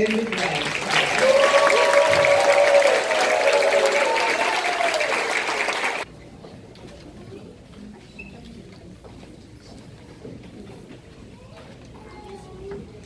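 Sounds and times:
audience applauding: 0:00.0 - 0:06.1
cheering voices: 0:00.8 - 0:06.1.

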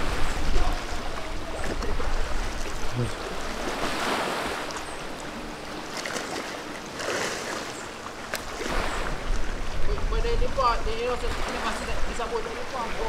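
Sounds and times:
distant outboard motor hum: 0:00.0 - 0:13.0
sea water washing in: 0:00.0 - 0:13.0.

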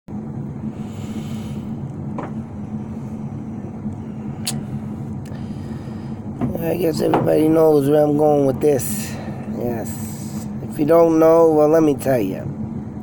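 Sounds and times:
low mechanical hum: 0:00.1 - 0:13.0
faint knock: 0:02.2 - 0:02.4.

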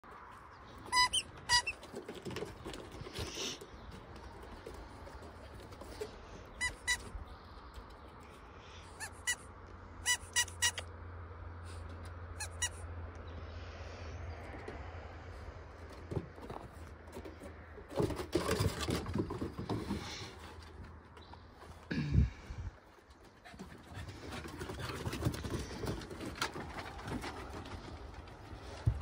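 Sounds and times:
paws scuffling on wooden deck: 0:00.6 - 0:08.0, 0:22.8 - 0:29.0
dogs squeaking: 0:00.9 - 0:01.9, 0:06.5 - 0:07.1, 0:10.0 - 0:10.8.

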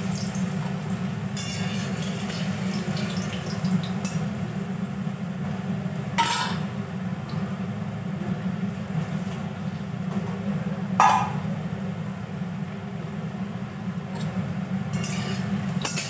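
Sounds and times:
potatoes sizzling in hot oil: 0:00.0 - 0:04.4
metal spatula scraping: 0:14.9 - 0:16.0.

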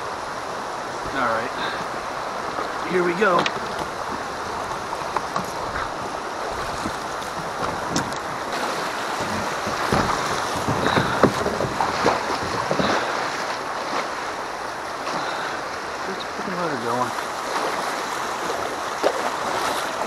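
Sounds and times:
river rushing through rapids: 0:00.0 - 0:20.0
water slapping against kayak hull: 0:01.0 - 0:20.0.

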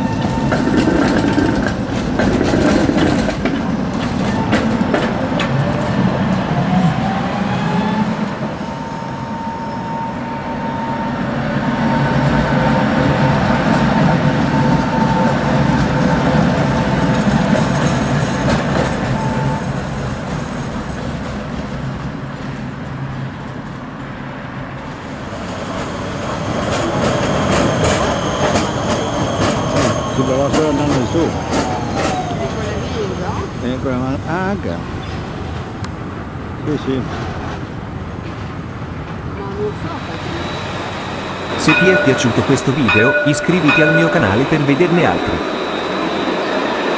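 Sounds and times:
tram wheels rumbling on rails: 0:00.0 - 0:46.9
thin tram whine: 0:38.2 - 0:46.9.

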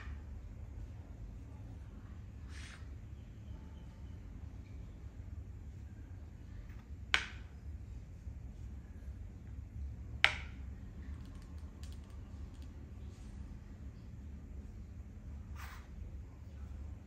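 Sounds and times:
chess piece knocking on board: 0:07.1 - 0:07.4, 0:10.2 - 0:10.6.

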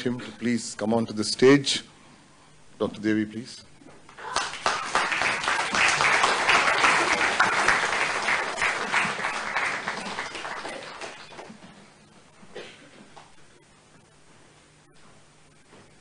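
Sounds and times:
audience applauding: 0:04.2 - 0:11.7.

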